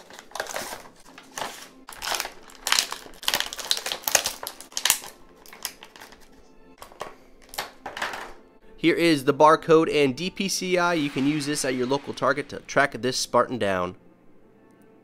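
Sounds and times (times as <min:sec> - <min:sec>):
plastic packaging crinkling: 0:00.0 - 0:07.8
quiet background music: 0:00.0 - 0:15.0.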